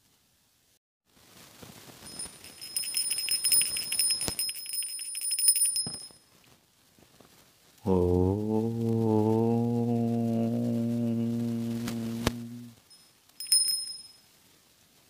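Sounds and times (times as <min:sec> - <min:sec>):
small bell shaken rapidly: 0:02.0 - 0:06.2, 0:12.9 - 0:14.2.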